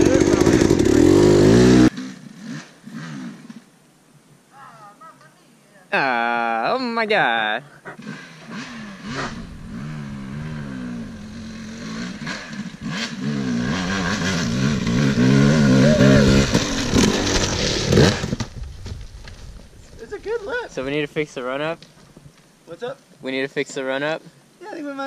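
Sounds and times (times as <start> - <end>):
dirt bike engine revving: 0.0 - 3.6, 7.9 - 18.5.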